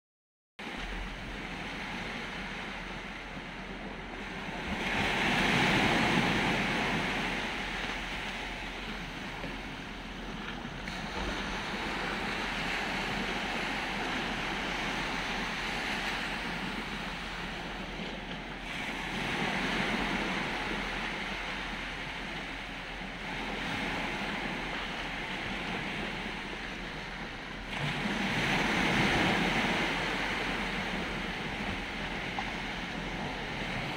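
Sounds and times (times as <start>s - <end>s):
small waves washing onto shore: 0.6s - 33.9s.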